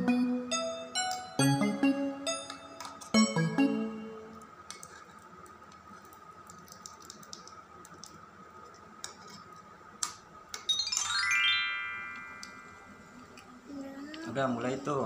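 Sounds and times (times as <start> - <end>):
chime-like synthesized sweep: 0.0 - 2.6, 10.8 - 13.1.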